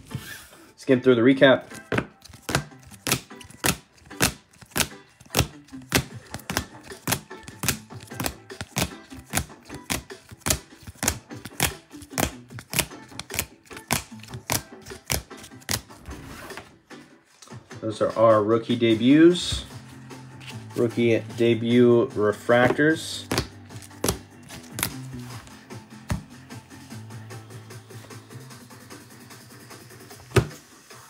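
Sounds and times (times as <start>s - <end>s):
plastic card cases clicking: 1.7s - 15.9s, 22.6s - 25.0s.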